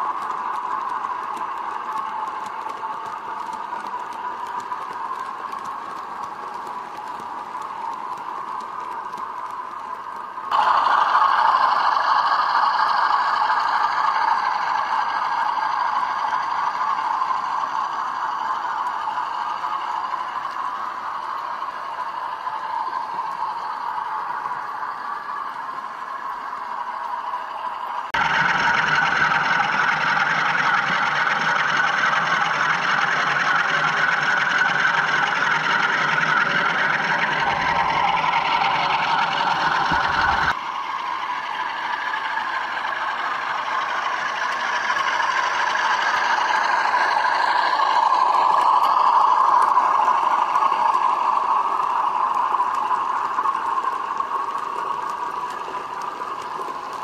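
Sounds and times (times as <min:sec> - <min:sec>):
model locomotive motor whirring: 0:00.0 - 0:57.0
model train wheels rattling: 0:00.0 - 0:57.0.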